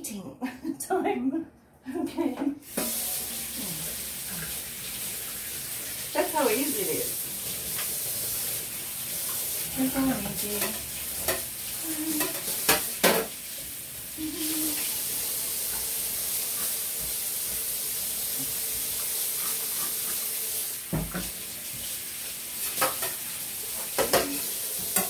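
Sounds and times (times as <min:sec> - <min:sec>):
tap running into sink: 0:02.6 - 0:03.4, 0:12.2 - 0:13.4, 0:20.8 - 0:21.9, 0:22.6 - 0:25.0
dishes knocking against sink: 0:12.2 - 0:13.4, 0:20.9 - 0:21.4, 0:23.9 - 0:25.0.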